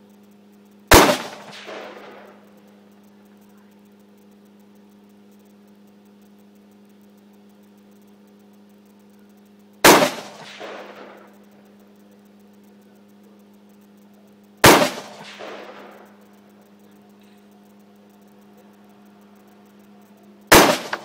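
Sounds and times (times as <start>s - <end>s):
rifle shots with echo: 0.9s - 2.4s, 9.8s - 11.3s, 14.6s - 16.1s, 20.5s - 21.0s.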